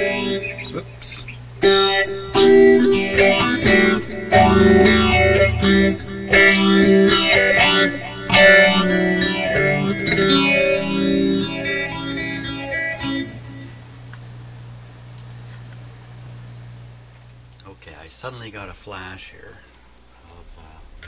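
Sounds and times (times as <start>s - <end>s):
electric guitar chords strummed: 0.0s - 14.2s.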